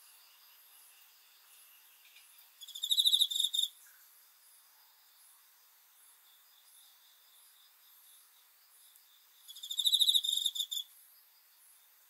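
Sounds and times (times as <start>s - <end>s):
cricket chirping trill: 0.0s - 12.0s
faint high chirping: 1.9s - 4.2s, 6.1s - 12.0s.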